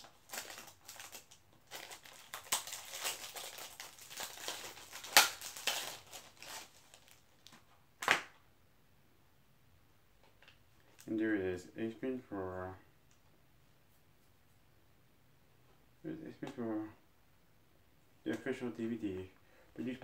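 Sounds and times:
plastic packaging crinkling: 0:00.0 - 0:07.6.

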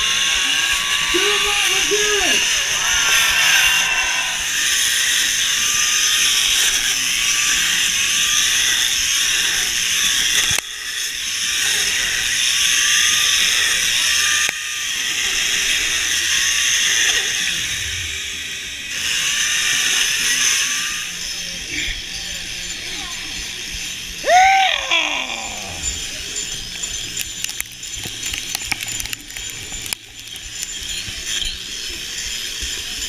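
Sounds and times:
chainsaw engines revving: 0:00.0 - 0:05.7, 0:23.1 - 0:26.5
chainsaws cutting ice: 0:00.0 - 0:33.0.

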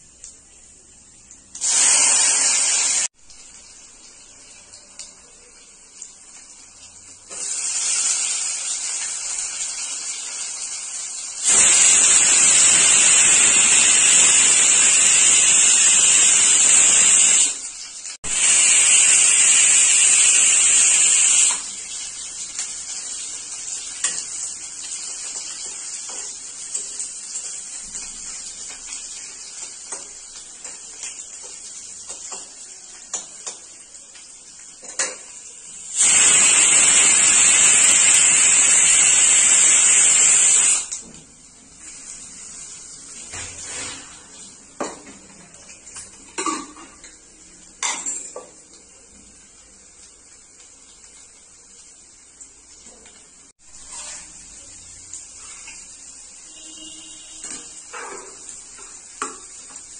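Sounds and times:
onions sizzling in hot oil: 0:00.0 - 0:59.9
spatula stirring onions: 0:21.7 - 0:35.4, 0:53.7 - 0:59.9.

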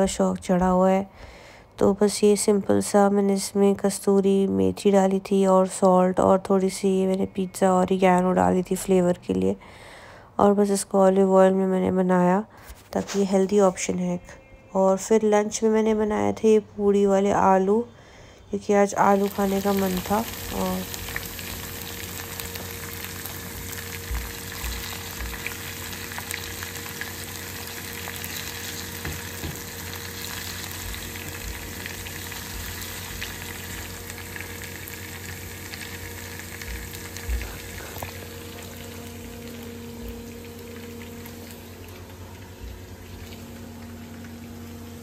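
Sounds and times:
food sizzling in hot oil: 0:19.0 - 0:45.0.

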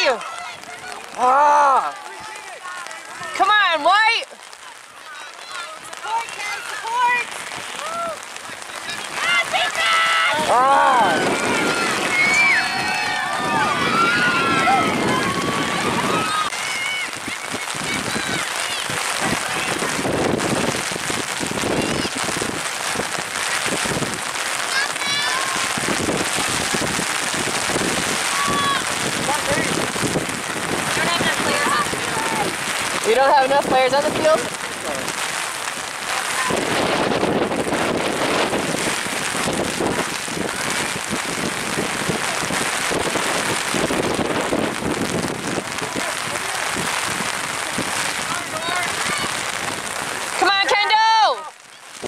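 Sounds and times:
heavy rain: 0:00.0 - 0:52.0
distant high-pitched shouts: 0:04.5 - 0:20.0, 0:24.6 - 0:26.8, 0:27.9 - 0:29.2.

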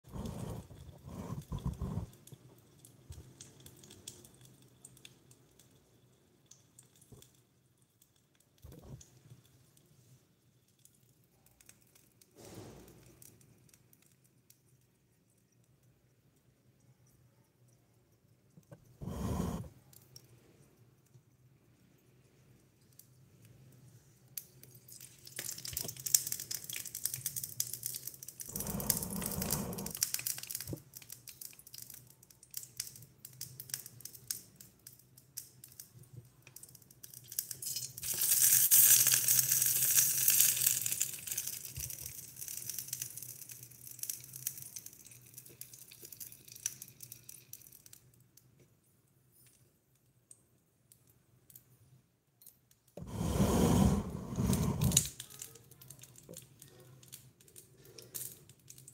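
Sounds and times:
food sizzling in a pot: 0:37.4 - 0:46.8.

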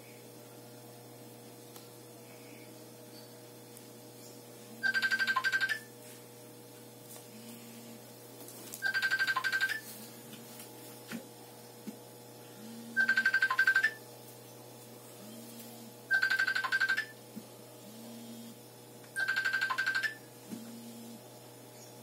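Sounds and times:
electronic trilling ring: 0:04.8 - 0:05.9, 0:08.8 - 0:09.9, 0:12.8 - 0:14.0, 0:16.1 - 0:17.2, 0:19.2 - 0:20.3.

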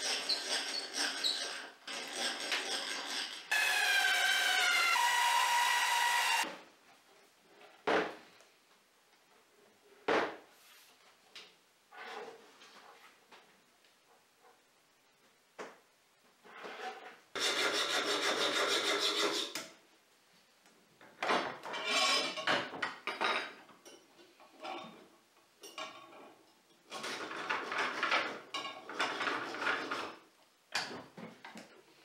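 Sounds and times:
file scraping metal rod: 0:00.0 - 0:03.6, 0:16.6 - 0:19.7.

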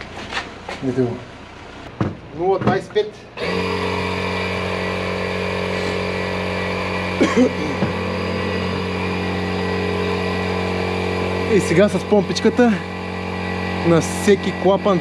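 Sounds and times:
electric air pump humming: 0:03.0 - 0:15.0.

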